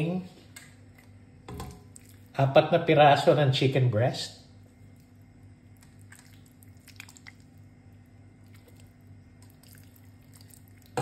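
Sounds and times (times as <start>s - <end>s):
low steady hum: 0.0s - 11.0s
soft squishes of raw chicken: 1.9s - 2.4s, 4.6s - 11.0s.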